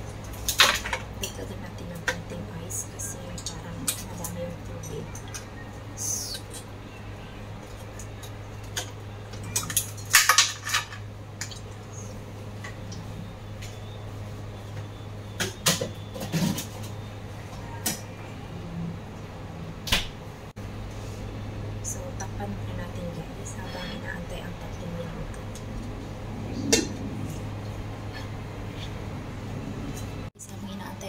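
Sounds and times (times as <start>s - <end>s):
steady low hum: 0.0s - 31.0s
kitchenware clatter: 0.4s - 1.4s, 7.6s - 11.7s.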